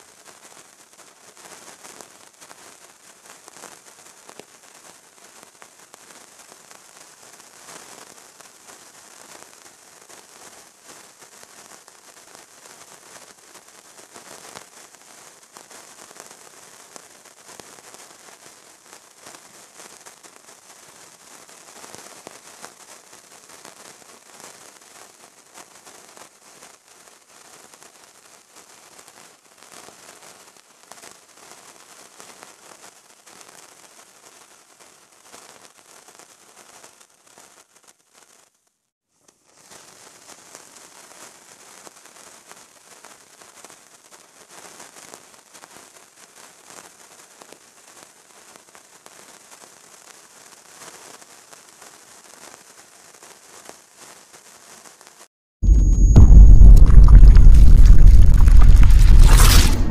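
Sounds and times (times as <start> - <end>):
fire crackling and popping: 55.6 - 59.9.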